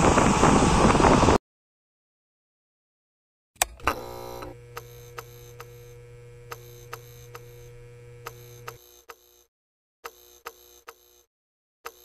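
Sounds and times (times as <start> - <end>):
electrical hum with buzz: 3.6 - 9.5, 10.1 - 11.3.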